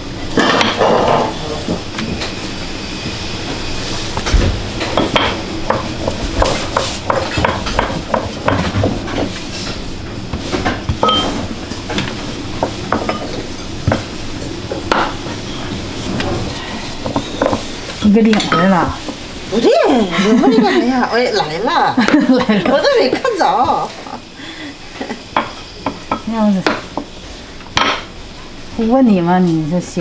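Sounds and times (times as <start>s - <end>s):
rolling pin on wooden board: 5.7s - 9.3s.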